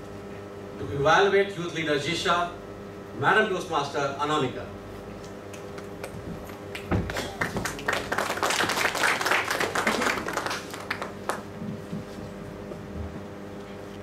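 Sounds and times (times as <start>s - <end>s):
audience clapping: 5.5s - 11.6s.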